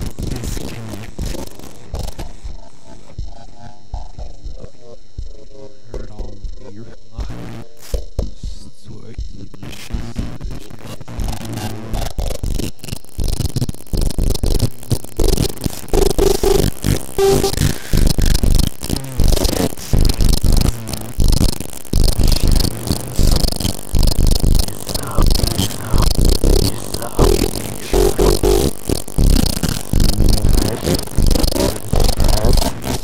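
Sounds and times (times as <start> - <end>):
experimental electronic music: 11.2 - 33.0.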